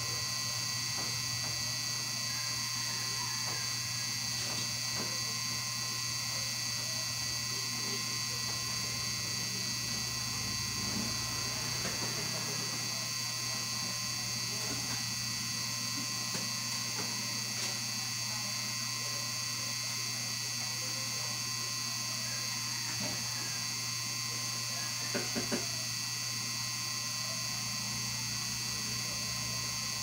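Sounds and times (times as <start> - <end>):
high whine: 0.0 - 21.3.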